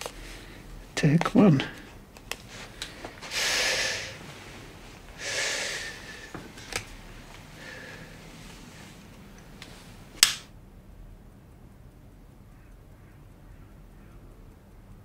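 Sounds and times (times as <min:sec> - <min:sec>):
person breathing out heavily: 0:02.6 - 0:04.5, 0:05.2 - 0:06.6, 0:07.5 - 0:08.4.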